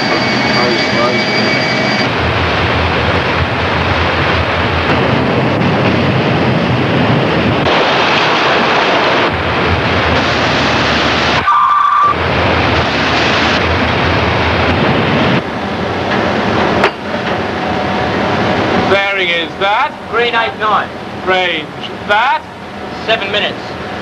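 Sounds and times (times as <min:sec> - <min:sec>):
short high beep: 0:00.0 - 0:02.1, 0:11.4 - 0:12.2
wind: 0:00.0 - 0:24.0
sea water rushing: 0:06.2 - 0:11.4.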